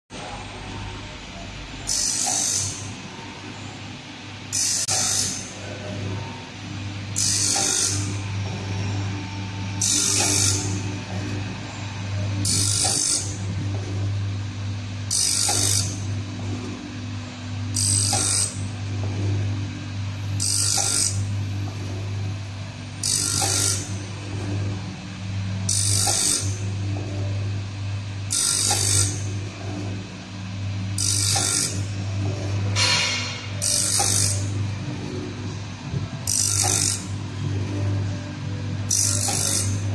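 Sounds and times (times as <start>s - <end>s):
grinding wheel grinding metal: 1.8s - 3.7s, 4.5s - 14.2s, 15.0s - 16.5s, 17.6s - 22.2s, 23.0s - 27.4s, 28.3s - 39.9s.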